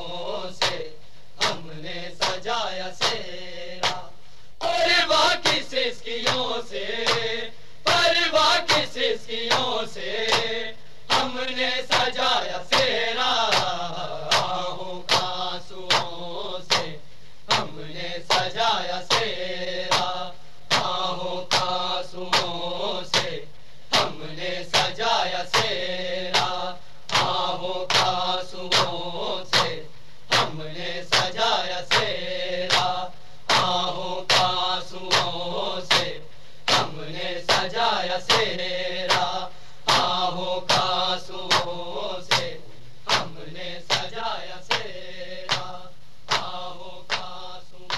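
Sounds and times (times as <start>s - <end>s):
men chanting: 0.0s - 47.9s.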